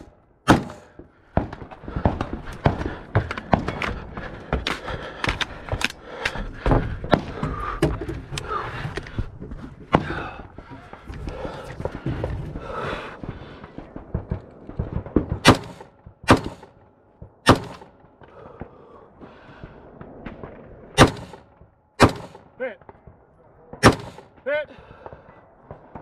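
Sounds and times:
heavy breathing: 0.6 - 14.1, 17.8 - 20.2, 24.7 - 26.0
footsteps on wooden stairs: 2.1 - 12.9.

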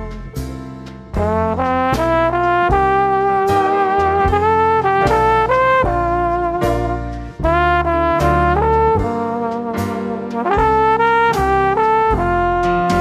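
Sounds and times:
brass-like melody with heavy bass: 0.0 - 13.0.

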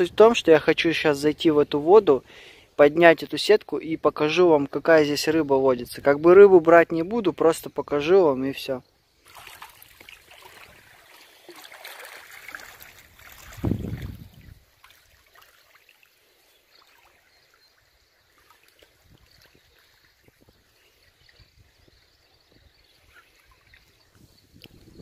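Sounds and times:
river water sloshing around legs: 9.2 - 24.9.

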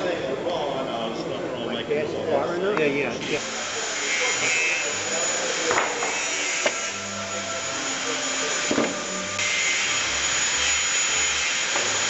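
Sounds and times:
workshop machinery whirring: 3.2 - 12.0.

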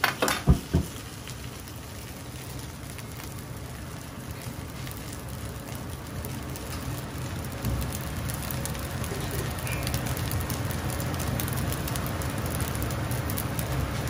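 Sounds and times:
gas burner rumbling: 0.0 - 14.0
rice sizzling in a wok: 0.0 - 14.0.

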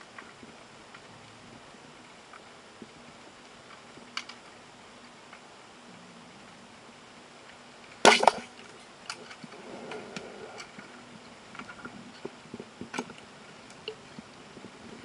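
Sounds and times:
speargun firing clack underwater: 8.1 - 8.5.

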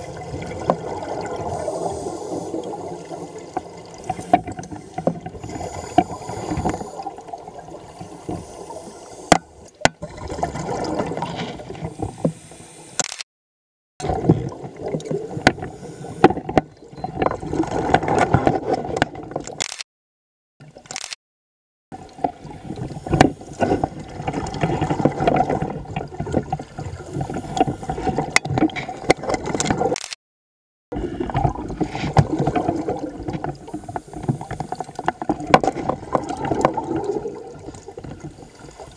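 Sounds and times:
scuba regulator bubbles gurgling: 0.0 - 9.3, 10.0 - 12.2, 14.0 - 18.2, 30.9 - 38.9.

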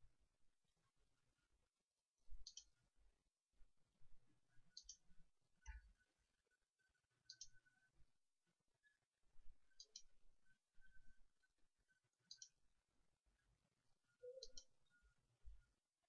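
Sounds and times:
computer mouse clicks: 2.4 - 2.8, 4.7 - 5.0, 7.3 - 7.6, 9.7 - 10.1, 12.2 - 12.6, 14.2 - 14.7.

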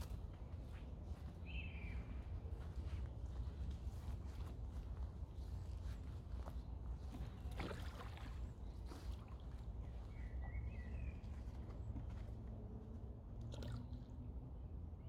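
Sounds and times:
bird chirp: 1.4 - 2.2, 9.8 - 11.7.

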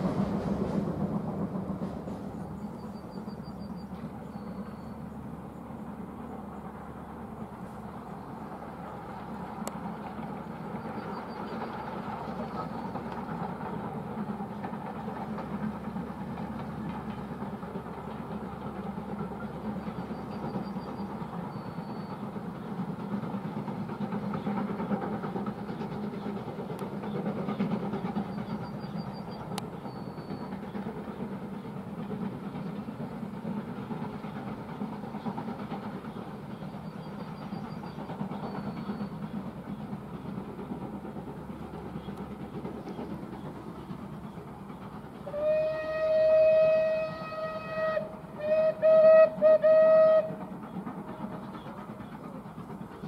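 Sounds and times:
distant steam train rumbling: 0.0 - 53.0
steam locomotive whistle: 45.2 - 50.4.

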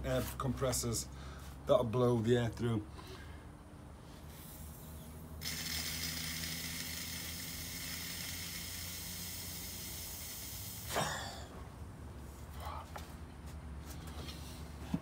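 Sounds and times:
air blown into fuel tank hiss: 4.2 - 11.0.

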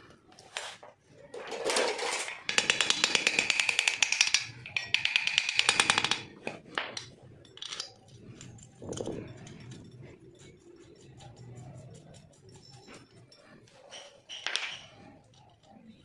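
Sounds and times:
small hammer tapping metal: 2.5 - 7.9.

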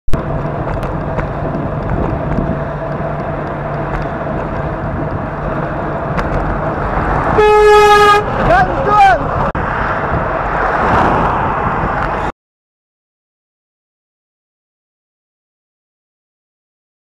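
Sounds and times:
road and wind noise: 0.1 - 12.4.

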